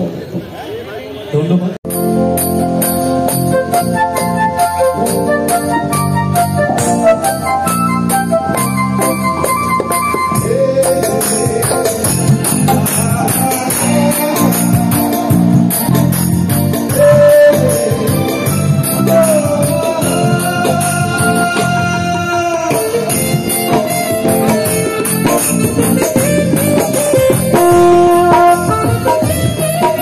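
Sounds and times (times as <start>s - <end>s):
live band over loudspeakers: 0.0s - 30.0s
jingling percussion beat: 10.7s - 21.4s, 22.8s - 30.0s.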